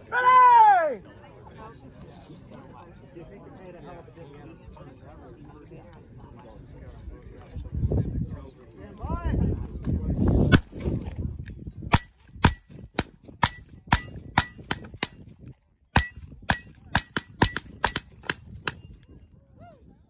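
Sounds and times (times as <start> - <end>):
steel plate ringing: 11.9 - 15.2, 16.0 - 18.9.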